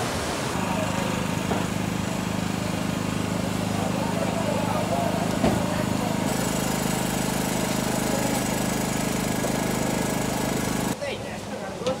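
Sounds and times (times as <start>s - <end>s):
engine idling: 0.6s - 11.0s.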